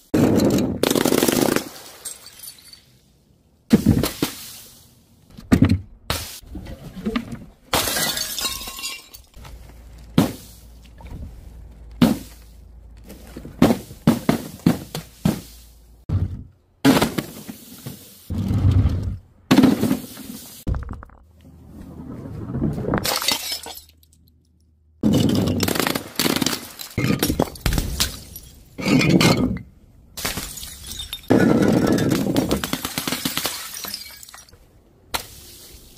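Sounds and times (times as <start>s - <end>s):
bottles smashing on hard floor: 7.8s - 9.4s, 23.0s - 23.9s.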